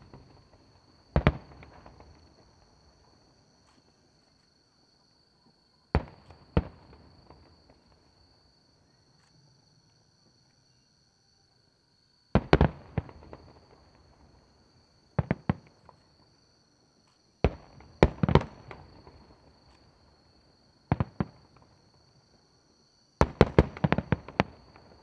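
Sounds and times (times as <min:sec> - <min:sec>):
firework bangs: 0:00.0 - 0:02.5
high insect trill: 0:00.0 - 0:23.2.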